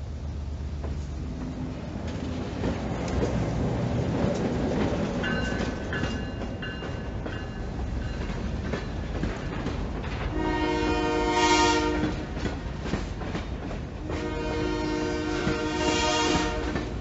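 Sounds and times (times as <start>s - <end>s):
train cars rumbling along track: 0.0s - 17.0s
locomotive air horn blast: 10.3s - 12.2s, 14.0s - 17.0s.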